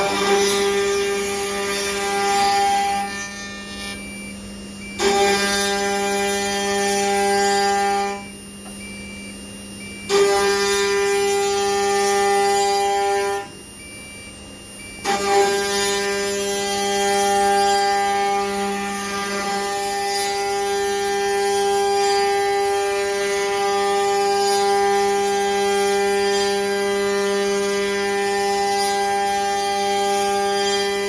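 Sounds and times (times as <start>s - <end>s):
router bits cutting wood: 0.0s - 4.0s, 5.0s - 8.2s, 15.0s - 31.0s
router spindles whining: 0.0s - 8.4s, 14.9s - 31.0s.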